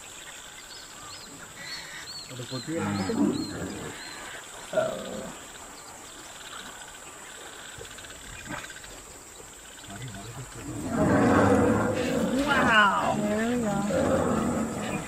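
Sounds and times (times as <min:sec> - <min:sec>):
rough wild animal calls: 0:09.9 - 0:15.0.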